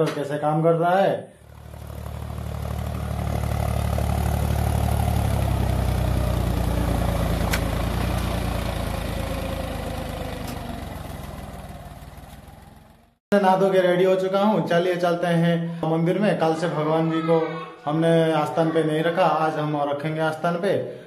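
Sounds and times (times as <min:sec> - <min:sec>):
tractor engine under load: 0:01.4 - 0:13.2.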